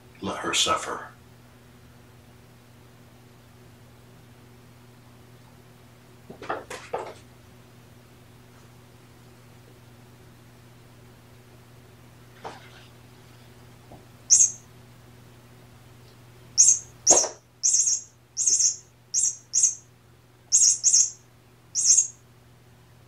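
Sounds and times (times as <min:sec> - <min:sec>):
high-pitched bird-like chirps: 0:14.3 - 0:14.6, 0:16.6 - 0:19.9, 0:20.5 - 0:21.2, 0:21.8 - 0:22.2.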